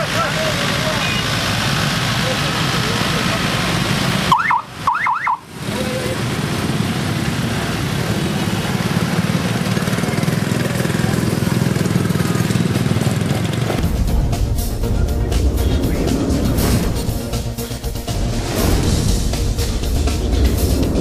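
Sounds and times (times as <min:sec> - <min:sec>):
crowd: 0:00.0 - 0:01.4
motorcycle and car engines: 0:00.0 - 0:21.0
warbling siren chirp: 0:04.3 - 0:05.5
low rumble: 0:13.8 - 0:21.0.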